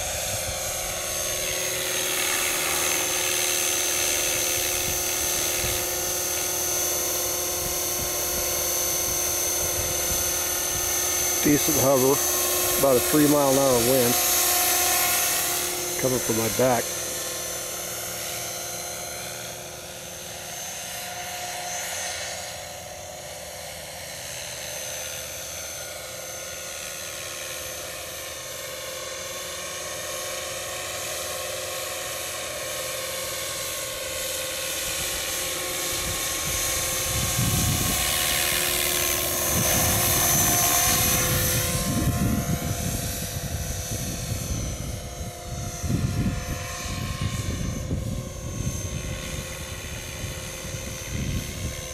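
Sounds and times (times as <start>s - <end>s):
model helicopter motor whine: 0.0s - 51.9s
wind gusts on microphone: 7.6s - 13.3s, 35.9s - 38.6s, 39.4s - 51.9s.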